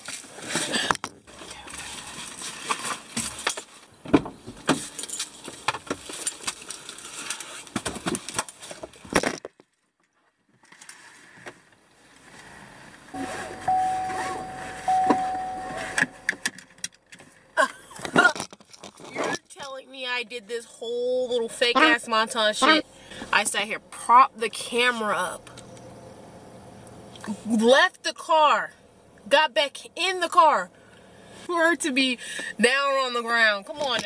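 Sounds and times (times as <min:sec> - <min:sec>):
steady electronic beep: 0:13.2 - 0:16.4.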